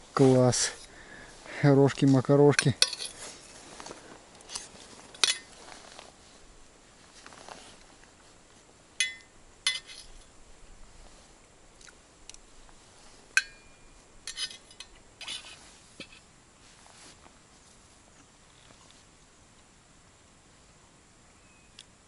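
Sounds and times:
metal spoon clinking on thermos: 0:02.6 - 0:03.2.

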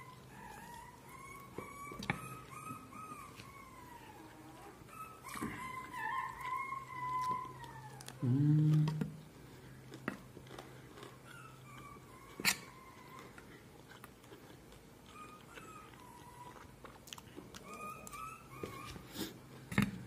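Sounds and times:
dog whimpering: 0:00.0 - 0:09.0, 0:11.1 - 0:13.6, 0:15.0 - 0:16.8, 0:17.4 - 0:19.4.

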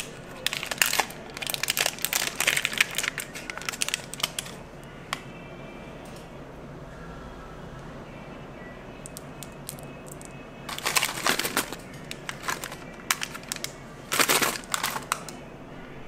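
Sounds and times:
plastic packet crinkling: 0:00.0 - 0:04.6, 0:09.1 - 0:15.4.

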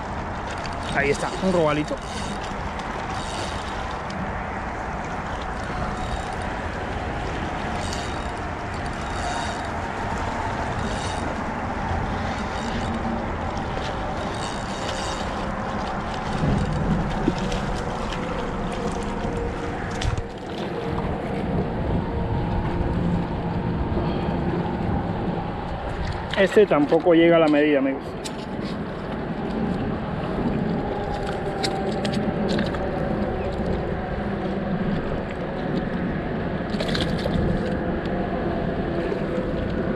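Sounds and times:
small waves washing on rocks: 0:00.0 - 0:20.5
wind on microphone: 0:00.0 - 0:39.9
fishing reel winding: 0:00.5 - 0:04.0, 0:05.6 - 0:06.5, 0:07.7 - 0:09.7, 0:10.6 - 0:11.4, 0:12.1 - 0:15.5.

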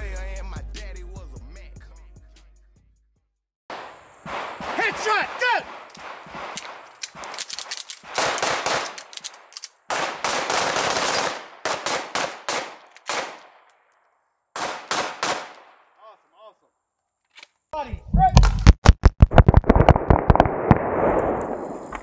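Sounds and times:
pistol shots: 0:03.7 - 0:13.6, 0:14.6 - 0:15.8.

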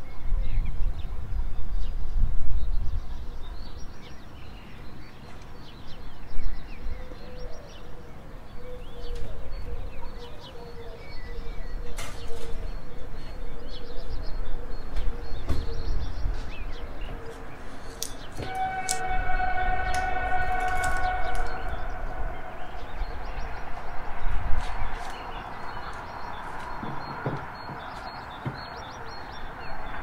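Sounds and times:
low rumble: 0:19.0 - 0:25.8
small birds chirping: 0:19.9 - 0:30.0.

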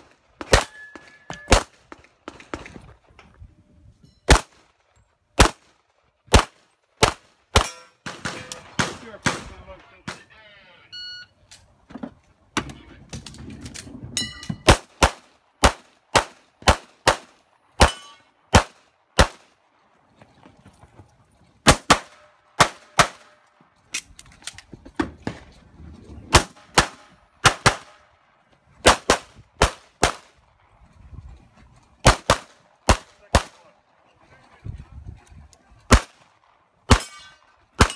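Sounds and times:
short metallic ring: 0:14.2 - 0:14.6
pistol shots: 0:14.7 - 0:19.5, 0:21.6 - 0:23.3, 0:26.3 - 0:28.0, 0:32.0 - 0:33.6, 0:35.9 - 0:36.2, 0:36.9 - 0:37.9.

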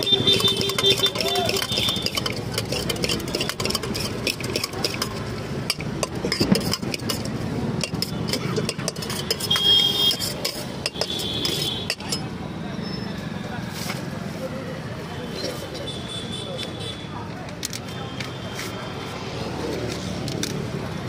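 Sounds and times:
metal spoon scraping steel bowl: 0:00.0 - 0:12.4.

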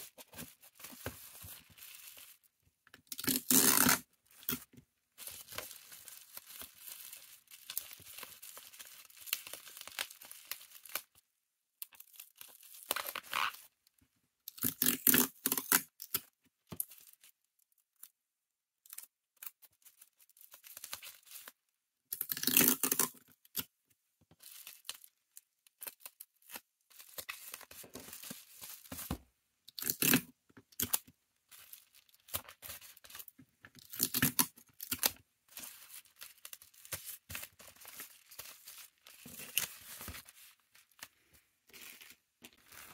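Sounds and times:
bubble wrap crinkling: 0:00.0 - 0:02.6, 0:03.2 - 0:11.2, 0:24.4 - 0:29.2, 0:30.8 - 0:42.9
packing tape pulled and torn: 0:03.1 - 0:04.6, 0:22.2 - 0:23.6, 0:29.8 - 0:31.0.

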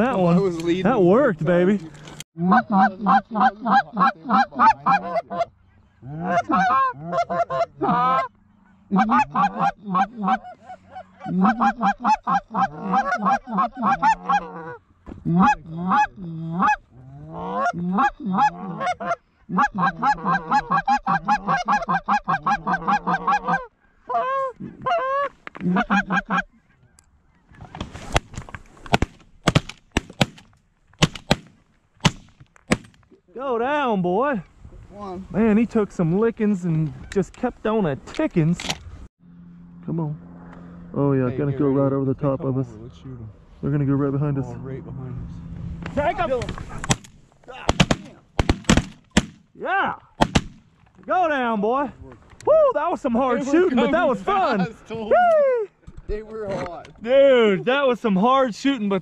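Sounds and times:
goose call honks and clucks: 0:02.4 - 0:27.8.

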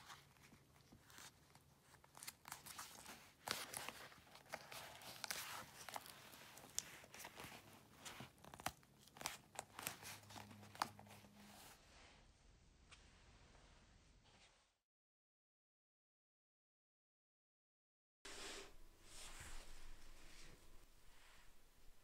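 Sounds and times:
leather crinkling and clicking: 0:00.4 - 0:11.4.

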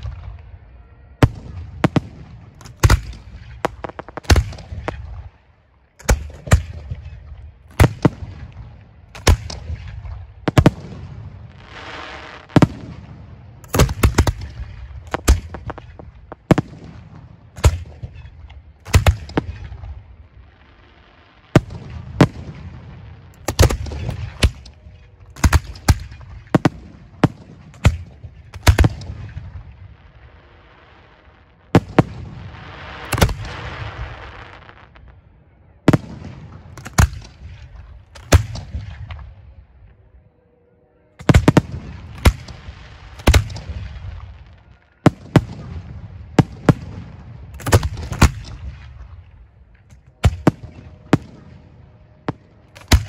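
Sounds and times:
firework shells booming: 0:01.2 - 0:05.3.

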